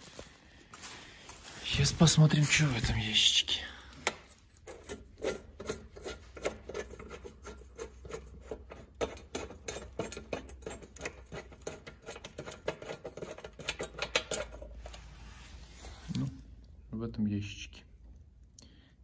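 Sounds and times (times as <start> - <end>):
plastic knob clicking and scraping: 4.1 - 14.6.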